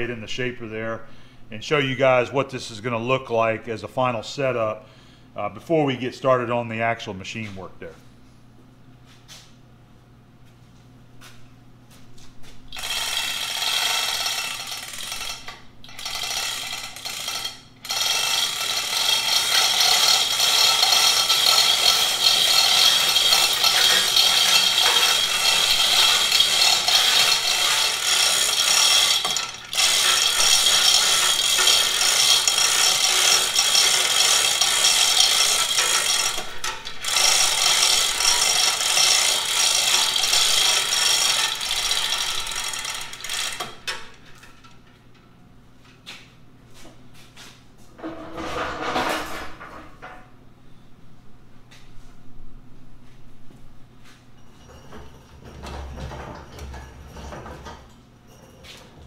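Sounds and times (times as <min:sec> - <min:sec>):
ratchet clicking: 0:12.8 - 0:44.5
hoist chain clattering: 0:12.8 - 0:44.9.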